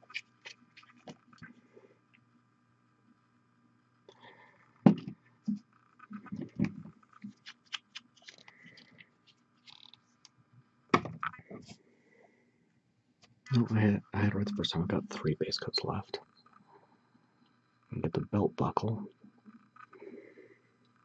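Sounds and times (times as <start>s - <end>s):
faint steady hum: 0.0s - 21.0s
plastic bottle clicks and knocks: 4.9s - 5.2s, 11.0s - 11.3s.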